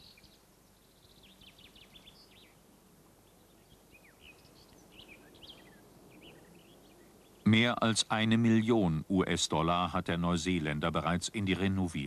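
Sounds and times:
small birds chirping: 0.0 - 8.9
background hiss: 0.0 - 12.0.

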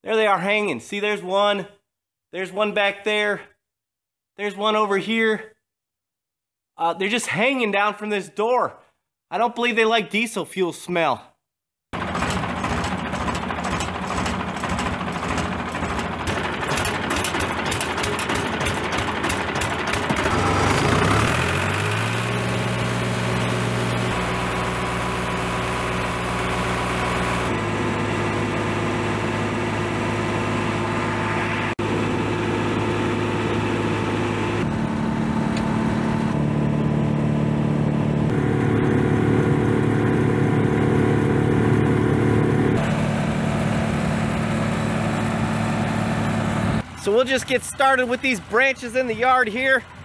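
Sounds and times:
tractor engine running: 12.0 - 50.0.

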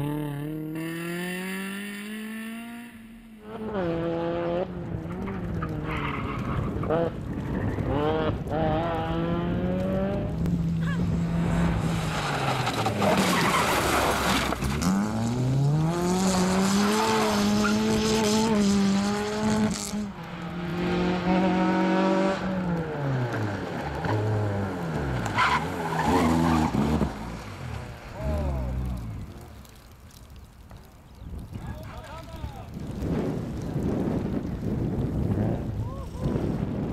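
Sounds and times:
tyres squealing and skidding: 5.6 - 6.8, 11.8 - 14.9, 16.6 - 18.2, 25.0 - 28.2
racing car engine revving: 14.7 - 27.2.

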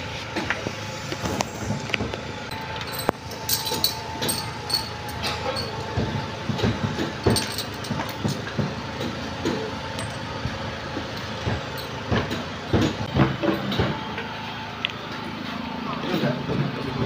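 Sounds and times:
steady background noise: 0.0 - 17.0
metal parts and tools clinking: 2.5 - 6.0, 7.0 - 8.5, 9.5 - 10.4, 11.1 - 12.0.

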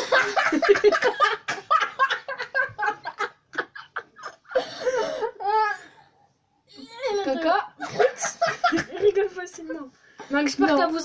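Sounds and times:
boys laughing: 0.0 - 6.0, 7.8 - 9.9.

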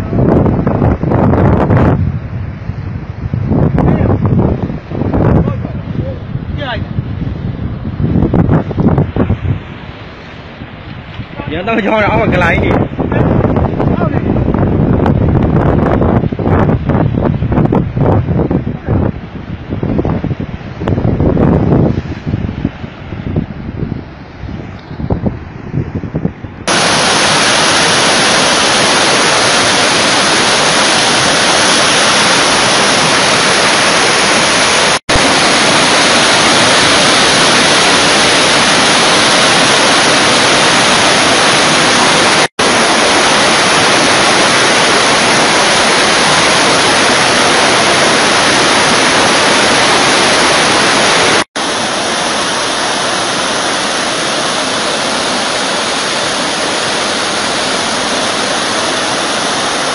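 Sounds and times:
flood water rushing: 8.2 - 14.5, 17.6 - 59.9.

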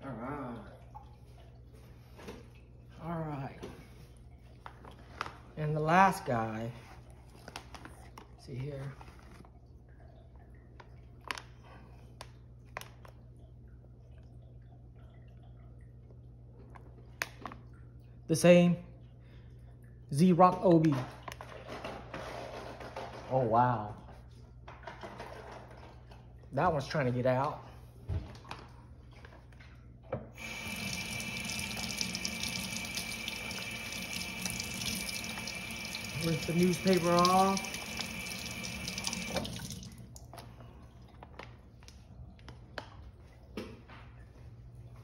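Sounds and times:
faucet water running into sink: 30.4 - 40.3.

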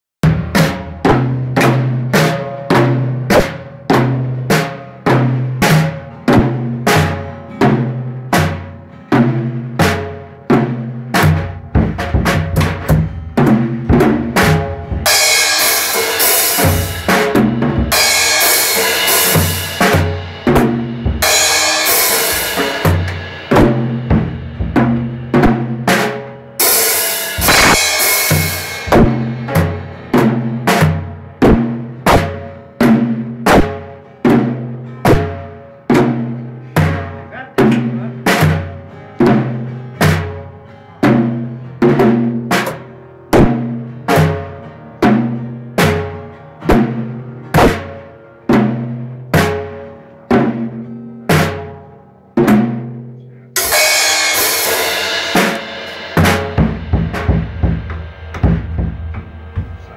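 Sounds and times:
drum strikes with ringing toms: 0.2 - 51.8, 53.6 - 59.9
cymbal crashes: 14.5 - 25.2, 26.6 - 29.9, 53.6 - 59.9.

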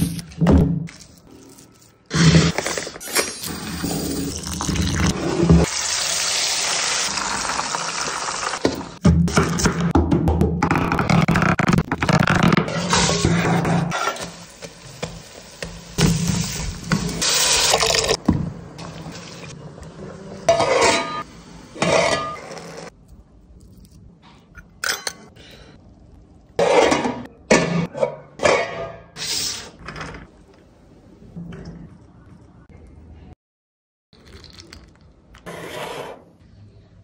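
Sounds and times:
metal utensils scraping a pan: 20.5 - 22.9.

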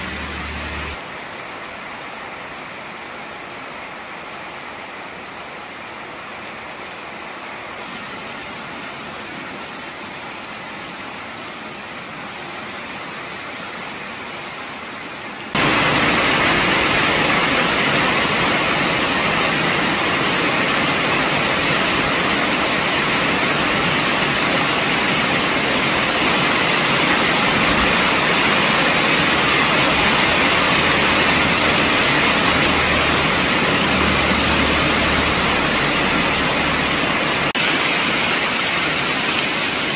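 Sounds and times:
car driving on wet road: 0.0 - 1.0, 15.6 - 37.6
heavy rain pouring: 0.0 - 39.9
rain splashing on flooded ground: 0.0 - 39.9.

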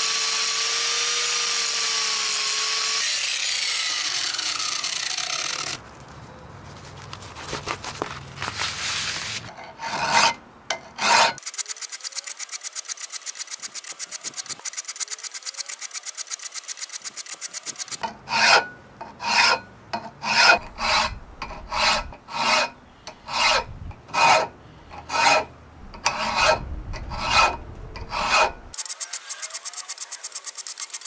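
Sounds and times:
hand file scraping steel: 8.8 - 31.0.

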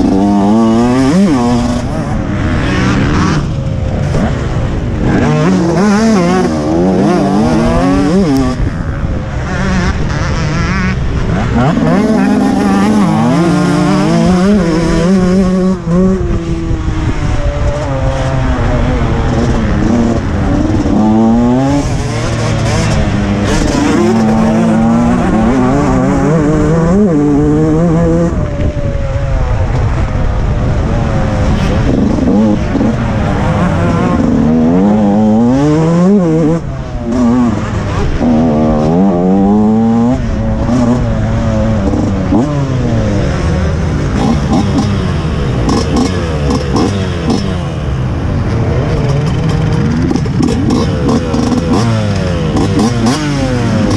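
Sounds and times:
motocross bike engine revving: 0.0 - 53.9
rushing wind noise: 0.0 - 53.9.

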